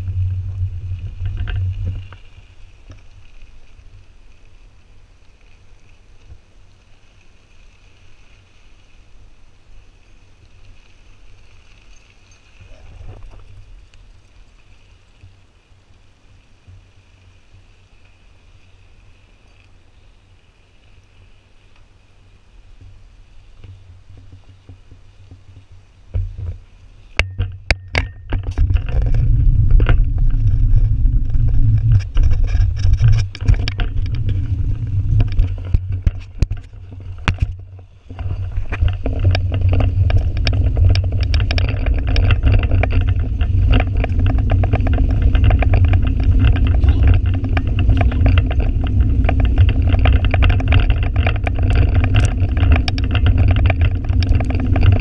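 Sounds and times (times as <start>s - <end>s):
wind buffeting microphone: 0.0s - 4.3s, 22.6s - 55.0s
crackle of clicks and rattles: 0.0s - 8.9s, 10.0s - 15.4s, 22.8s - 55.0s
bike tyre noise: 0.0s - 15.5s, 16.6s - 55.0s.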